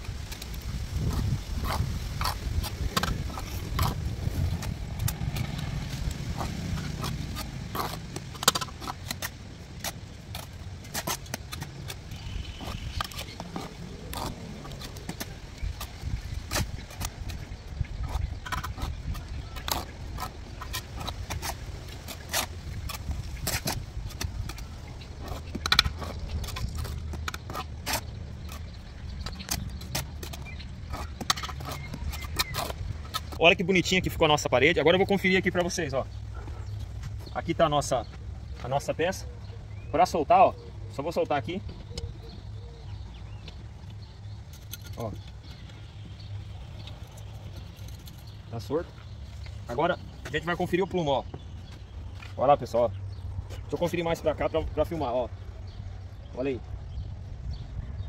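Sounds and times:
steady low rumble: 0:00.0 - 0:58.0
trowel scraping mortar: 0:00.3 - 0:24.6.

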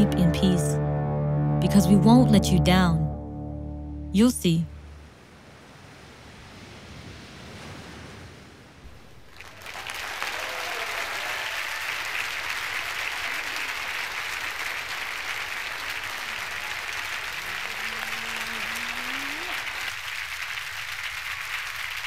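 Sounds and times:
audience applauding: 0:08.9 - 0:22.0.

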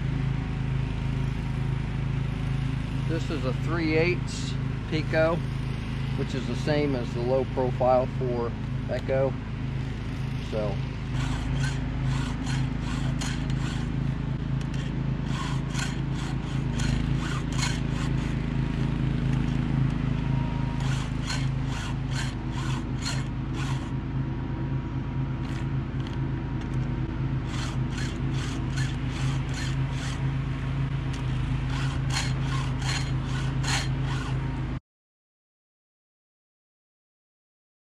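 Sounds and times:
low hum: 0:00.0 - 0:34.8
file scraping chainsaw chain: 0:05.0 - 0:05.5, 0:10.3 - 0:20.0, 0:20.7 - 0:24.0, 0:25.4 - 0:34.6.

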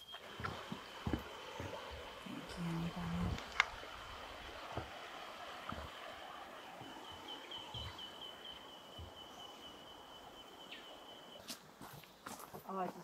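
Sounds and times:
faint running water: 0:00.0 - 0:13.0.

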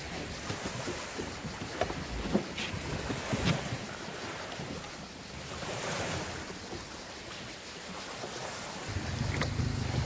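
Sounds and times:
sea water lapping and splashing: 0:00.0 - 0:10.0
wind buffeting microphone: 0:08.8 - 0:10.0.

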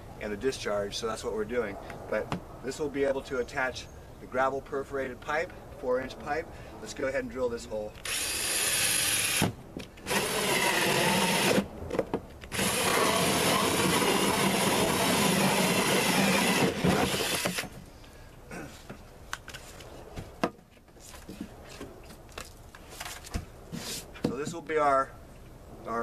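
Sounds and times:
drill cutting through plastic: 0:08.0 - 0:11.6, 0:12.5 - 0:17.7.

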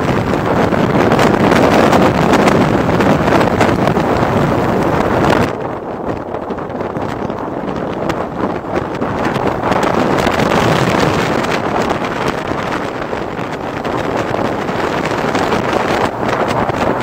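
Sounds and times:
motorcycle engine: 0:00.0 - 0:17.0
wind rushing over microphone: 0:00.0 - 0:17.0.

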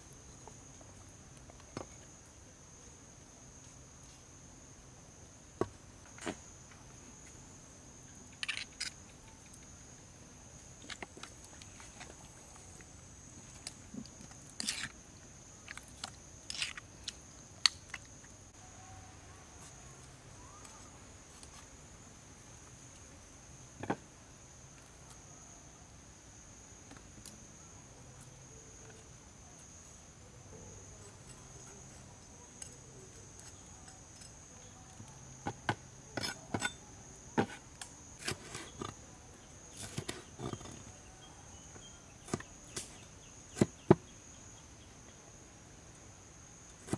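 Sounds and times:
insects droning: 0:00.0 - 0:46.9
metal spoon scraping stone bowl: 0:36.2 - 0:36.8.

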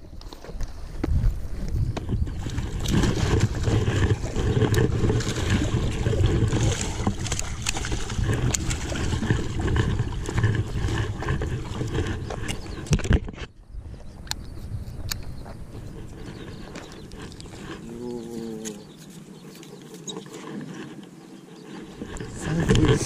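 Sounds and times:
low rumbling noise: 0:01.1 - 0:14.6.

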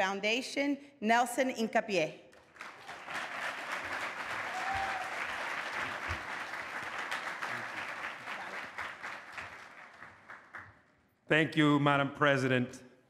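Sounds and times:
audience applauding: 0:02.4 - 0:10.8.

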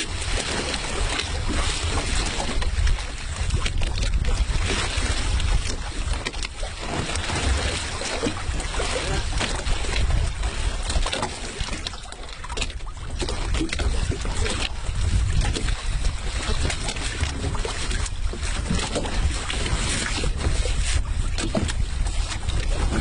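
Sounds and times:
wind buffeting microphone: 0:00.0 - 0:23.0.

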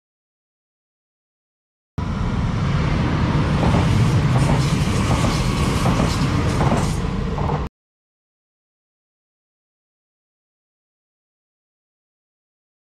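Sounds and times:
train wheels rumbling on rails: 0:02.0 - 0:07.7.

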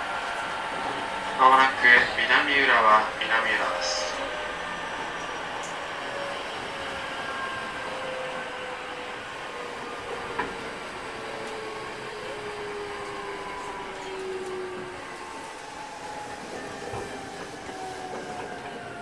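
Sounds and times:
train rolling noise: 0:00.0 - 0:19.0.

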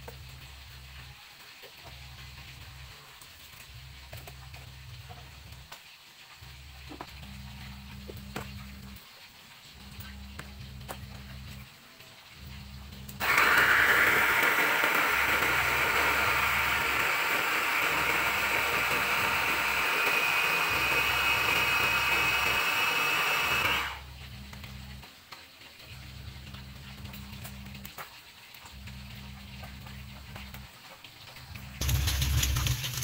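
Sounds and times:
electric food chopper whining: 0:13.2 - 0:24.1, 0:31.8 - 0:33.0.

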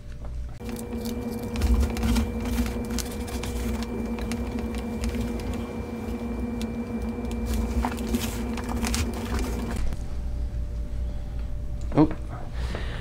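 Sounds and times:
steady hum: 0:00.5 - 0:11.8
compost rustling and crackling: 0:00.6 - 0:10.0.

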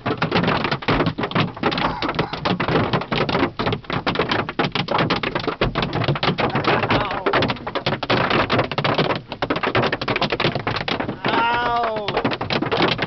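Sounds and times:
hailstones pounding car roof: 0:00.0 - 0:13.0.

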